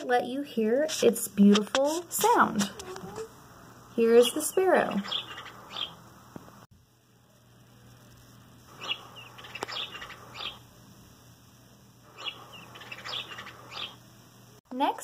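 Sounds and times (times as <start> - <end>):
sparrow chirps through small speaker: 4.4 - 6.0, 8.8 - 10.6, 12.1 - 14.0.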